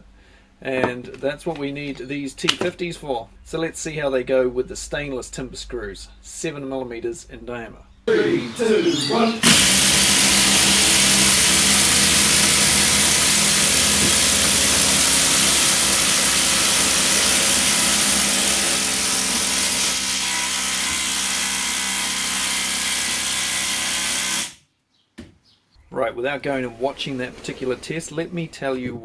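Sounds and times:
impact drivers hammering screws: 9.4s - 24.6s.

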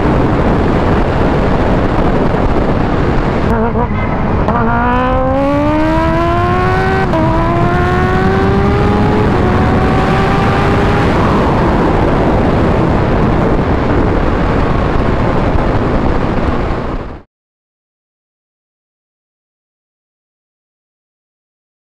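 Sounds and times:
motorcycle engine accelerating hard: 0.0s - 16.8s
heavy wind rush on microphone: 0.0s - 17.3s.

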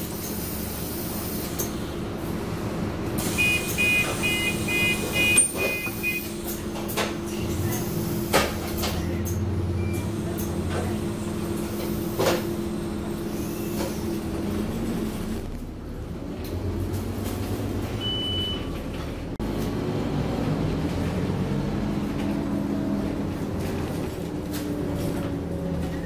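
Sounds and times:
bus diesel engine idling: 0.0s - 26.0s
short high beep: 3.4s - 6.3s.

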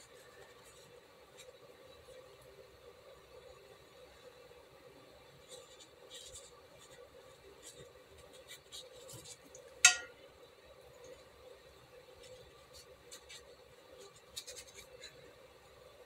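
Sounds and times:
low steady hum: 0.0s - 16.0s
brush dabbing on paper: 5.4s - 10.1s, 12.1s - 15.4s
sharp ringing clink: 9.9s - 10.1s.

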